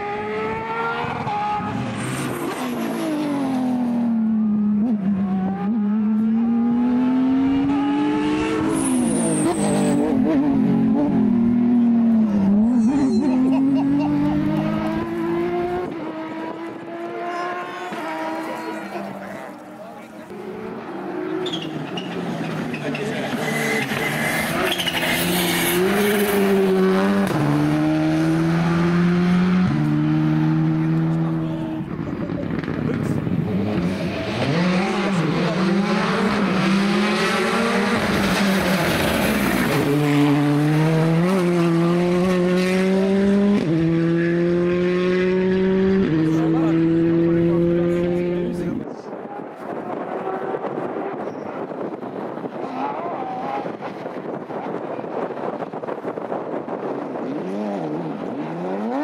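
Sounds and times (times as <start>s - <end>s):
rally car engine revving: 0.0s - 59.0s
thin high squeal: 12.7s - 13.4s.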